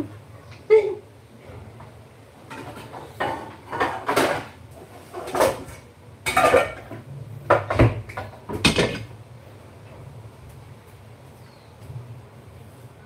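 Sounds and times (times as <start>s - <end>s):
dishes and cutlery clattering: 2.4s - 9.1s.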